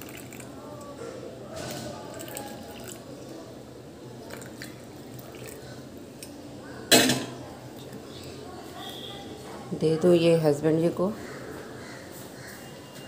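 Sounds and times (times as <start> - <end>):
water trickling into glass: 0.0 - 0.5, 2.0 - 3.1, 4.2 - 5.8.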